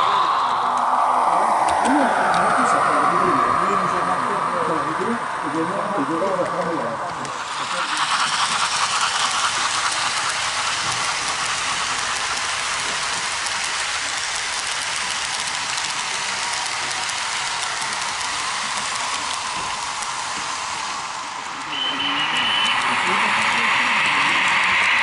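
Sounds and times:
model train wheels rattling on rails: 0:05.5 - 0:25.0.

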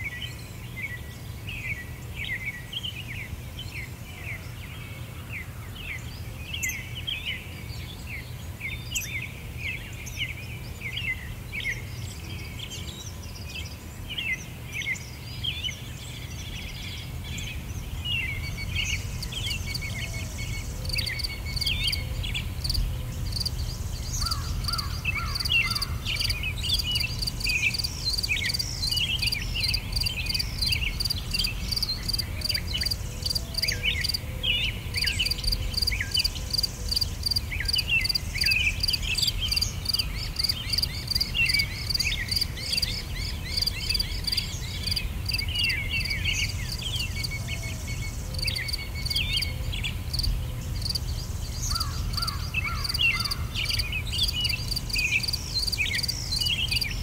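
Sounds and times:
insects chirping: 0:17.5 - 0:34.2, 0:34.9 - 0:57.0.

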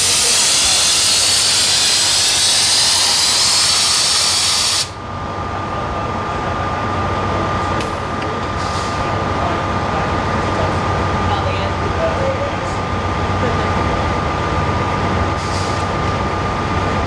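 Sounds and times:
diesel engine idling: 0:00.0 - 0:17.0
air brake hiss: 0:00.1 - 0:05.0, 0:08.6 - 0:09.1, 0:15.4 - 0:15.9.

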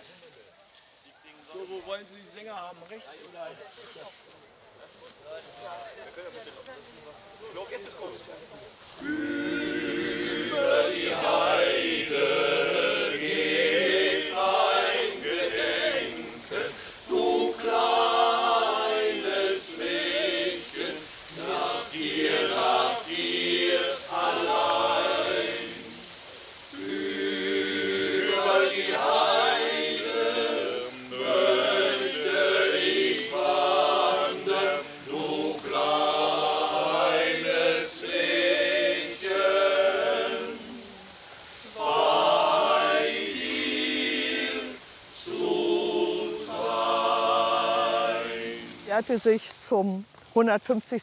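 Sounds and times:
male choir singing a cappella: 0:09.0 - 0:49.0.

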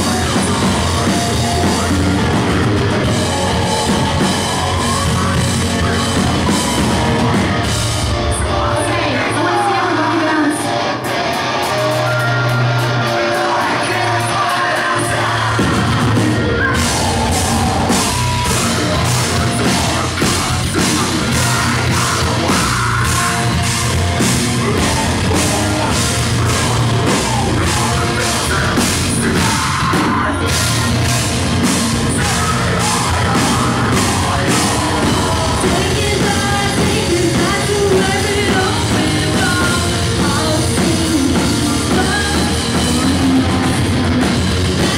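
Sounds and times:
driving drum beat: 0:00.0 - 0:44.9
live rock band playing loud: 0:00.0 - 0:44.9
man and woman singing and shouting: 0:00.0 - 0:44.9.

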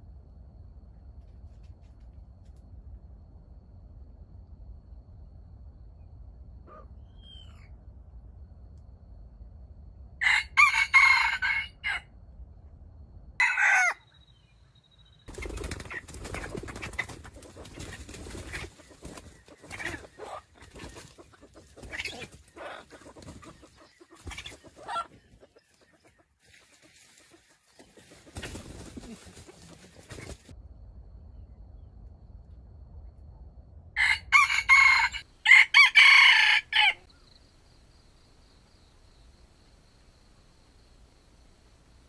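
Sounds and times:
rooster calls: 0:10.2 - 0:12.1, 0:13.4 - 0:14.1, 0:34.0 - 0:37.1
rooster crowing: 0:10.2 - 0:12.1, 0:13.4 - 0:14.1, 0:34.0 - 0:37.1
crackly rustling: 0:26.4 - 0:30.5.

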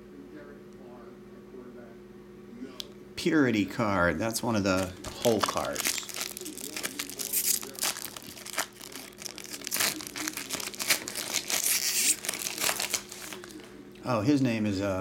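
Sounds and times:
foil wrapper crinkling: 0:04.6 - 0:13.8.

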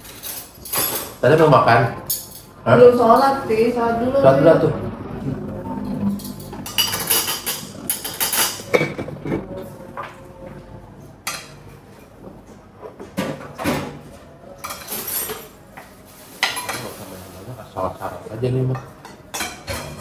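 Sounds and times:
cutlery clinking on plates: 0:14.6 - 0:17.0, 0:18.8 - 0:20.0.

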